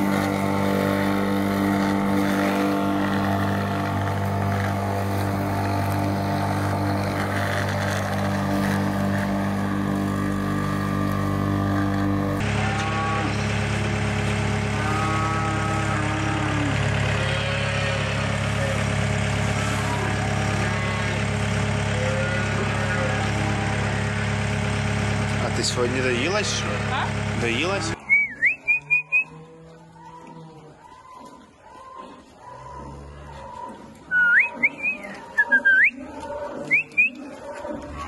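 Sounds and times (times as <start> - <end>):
loader engine idling: 0.0 - 29.2
electric lawn mower running: 0.0 - 29.3
cattle mooing: 0.0 - 38.0.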